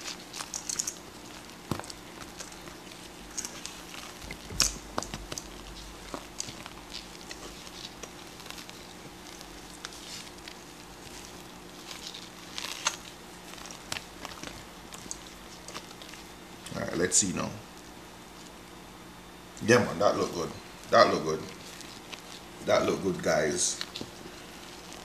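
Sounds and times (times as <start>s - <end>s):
cereal stirred into cream: 0.0s - 16.7s.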